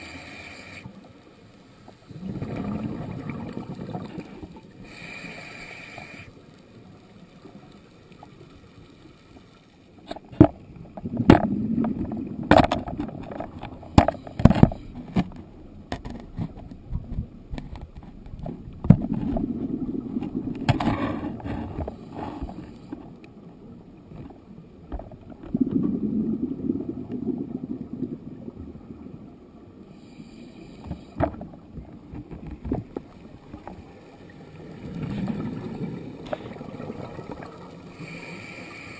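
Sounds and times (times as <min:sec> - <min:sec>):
underwater bubbles: 0:00.0 - 0:38.9.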